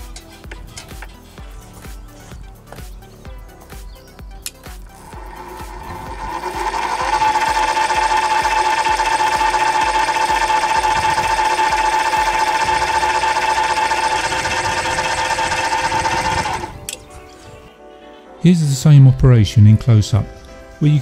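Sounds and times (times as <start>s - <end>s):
lathe motor whining: 5.0s - 17.0s.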